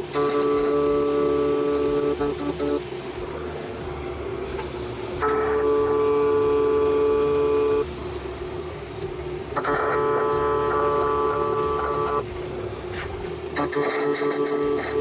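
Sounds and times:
welding arc hissing and humming: 0:00.0 - 0:15.0.

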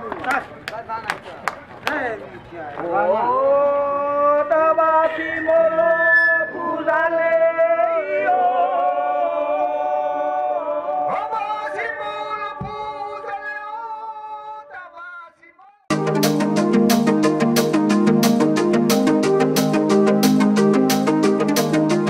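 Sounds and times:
voices chanting long notes: 0:03.1 - 0:14.6.

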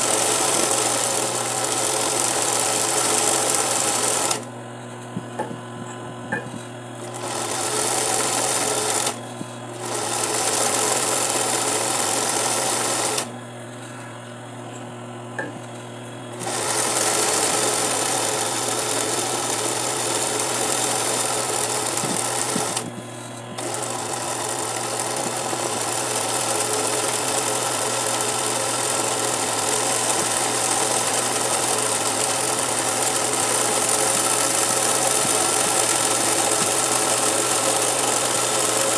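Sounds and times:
sewing machine stitching: 0:00.0 - 0:04.5, 0:07.0 - 0:09.2, 0:09.8 - 0:13.3, 0:16.3 - 0:22.9, 0:23.6 - 0:38.9
steady low hum: 0:04.4 - 0:07.4, 0:09.2 - 0:10.0, 0:13.3 - 0:16.4.

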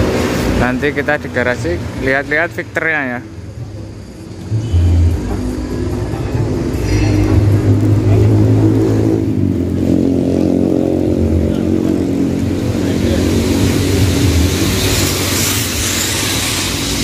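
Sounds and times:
hiss: 0:13.0 - 0:17.0.

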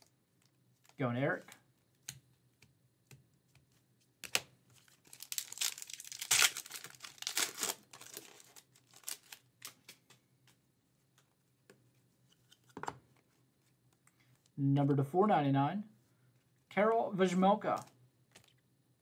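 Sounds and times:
foil wrapper tearing and crinkling: 0:04.8 - 0:09.8.

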